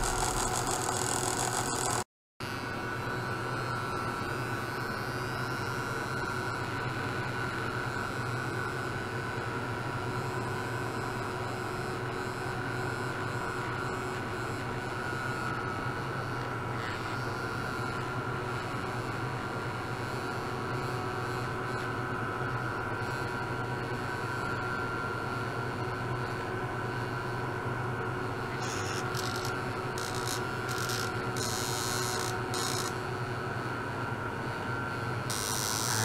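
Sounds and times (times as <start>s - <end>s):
electrical hum: 0.0s - 2.0s, 28.0s - 36.0s
faint electronic whining: 0.0s - 2.0s.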